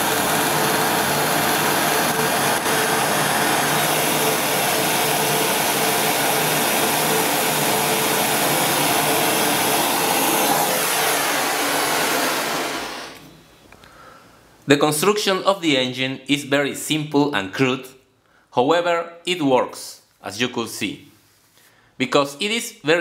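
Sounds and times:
blowtorch flame hissing: 0.0 - 13.3.

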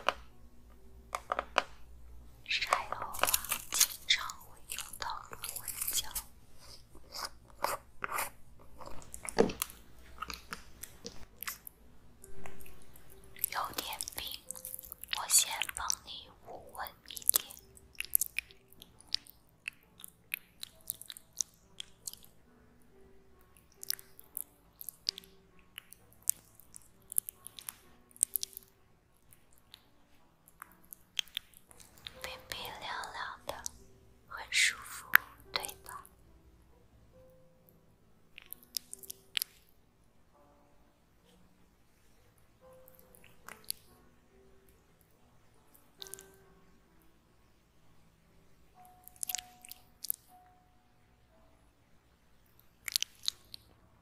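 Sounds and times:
plastic jar lid crinkly clicks: 1.1 - 1.8
sticky wet gel clicks: 13.4 - 22.3, 23.6 - 28.7, 38.4 - 39.6, 49.0 - 50.3, 52.8 - 53.7.

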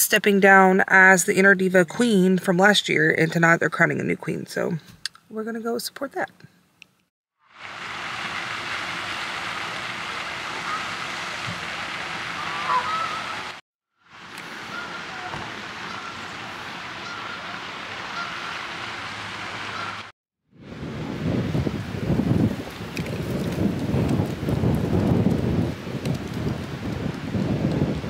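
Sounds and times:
fountain water rushing: 7.5 - 20.1
geese honking: 8.2 - 13.6, 14.3 - 20.1.

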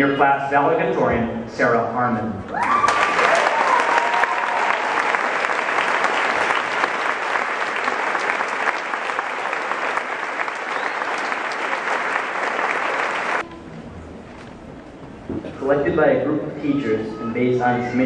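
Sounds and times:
audience applauding: 2.6 - 13.4.

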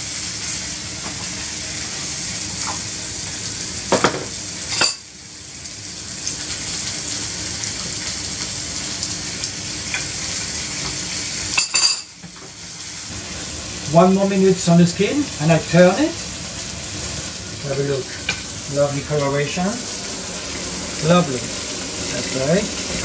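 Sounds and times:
food sizzling in a frying pan: 0.0 - 23.0.

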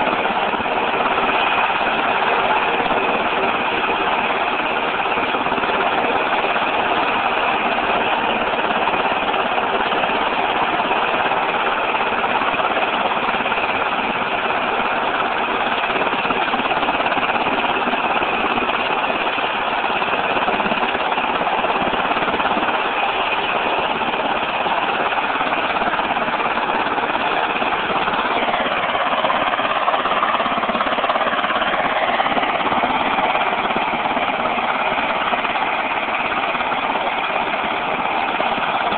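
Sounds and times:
helicopter turbines and rotor drone: 0.0 - 38.9.

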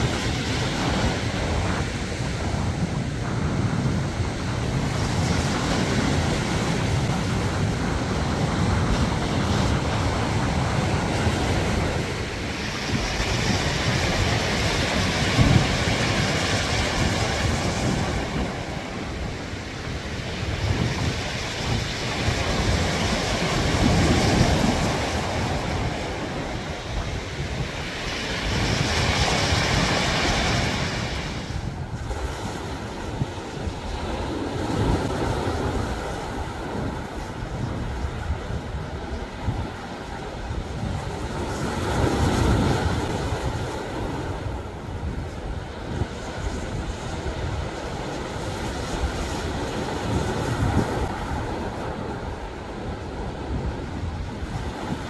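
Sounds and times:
wind rumble on microphone: 0.0 - 55.0.

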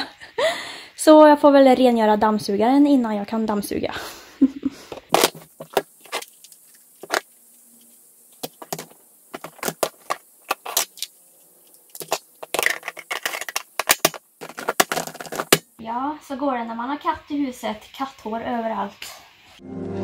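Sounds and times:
plastic vacuum parts clicking: 8.4 - 11.1, 11.9 - 15.6
scraping and rattling: 11.7 - 15.6.

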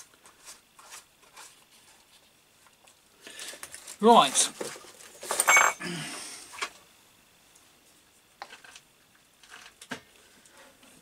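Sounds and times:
objects clinking on a workbench: 4.6 - 5.9.

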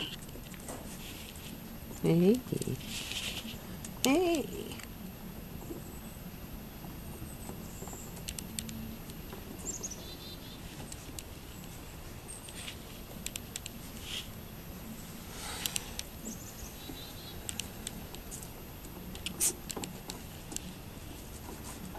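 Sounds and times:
small birds chirping: 7.0 - 14.5, 15.4 - 18.5.

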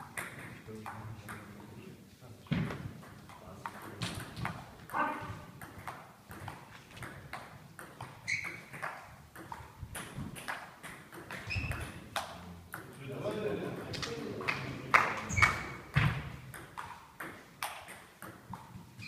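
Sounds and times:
short high squeaks: 8.2 - 8.7, 11.4 - 11.9, 15.3 - 15.8.

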